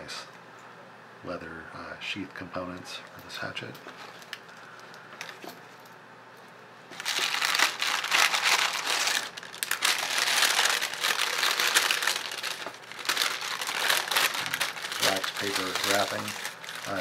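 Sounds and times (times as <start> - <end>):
wax paper crinkling: 6.9 - 17.0.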